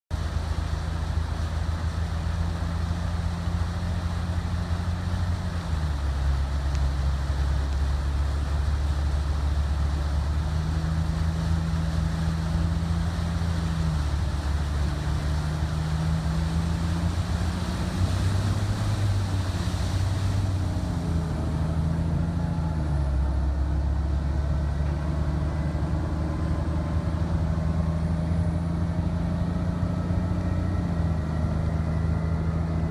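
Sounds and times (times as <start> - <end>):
truck engine under load: 0.1 - 32.9
tyres hissing through water: 0.2 - 23.4.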